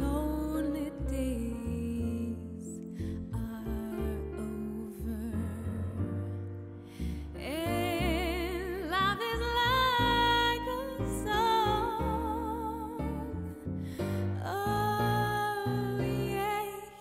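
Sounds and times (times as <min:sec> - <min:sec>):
recorded musical accompaniment: 0:00.0 - 0:17.0
woman singing with vibrato: 0:07.4 - 0:13.5, 0:14.2 - 0:17.0.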